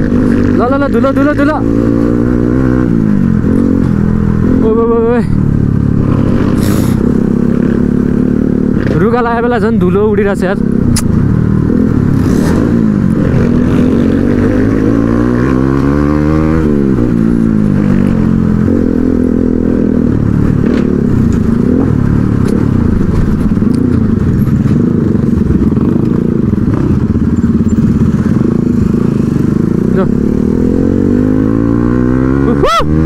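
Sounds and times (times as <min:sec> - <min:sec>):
motorcycle engine running: 0:00.0 - 0:32.8.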